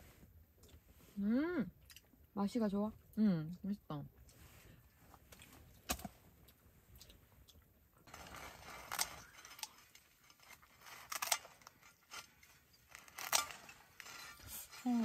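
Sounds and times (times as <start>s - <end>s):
scissors crunching through crust: 8.1s - 15.0s.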